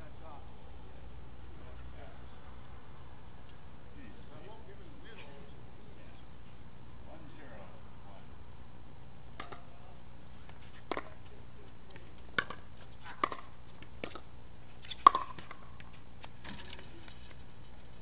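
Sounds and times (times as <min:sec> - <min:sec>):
paddles hitting plastic ball: 0:09.4 - 0:09.7, 0:10.4 - 0:11.2, 0:11.9 - 0:17.4.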